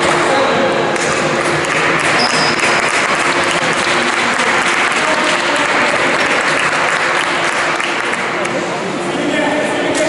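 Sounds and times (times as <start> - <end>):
crowd noise: 0.0 - 10.0
people clapping: 0.9 - 8.7.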